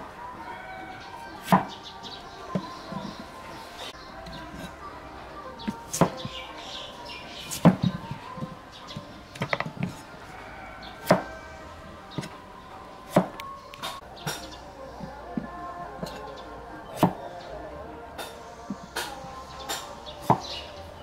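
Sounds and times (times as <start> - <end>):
cleaver chopping on wooden block: 5.6 - 6.3, 11.0 - 11.4, 18.7 - 20.5.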